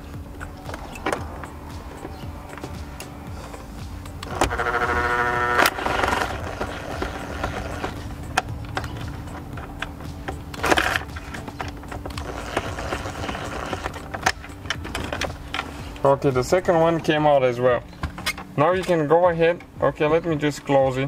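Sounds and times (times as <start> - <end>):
rapid buzzing clicks: 4.0 - 15.6.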